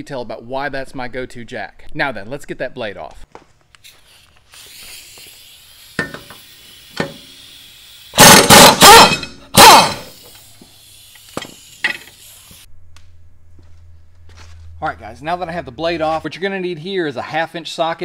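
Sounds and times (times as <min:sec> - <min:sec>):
air impact wrench hammering: 0:04.7 - 0:12.5.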